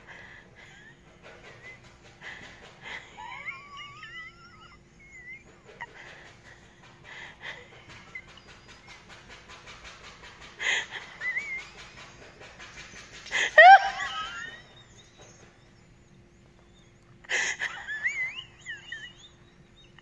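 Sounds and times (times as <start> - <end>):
dog panting: 0.0 - 20.0
dog whining: 2.8 - 9.1, 10.6 - 20.0.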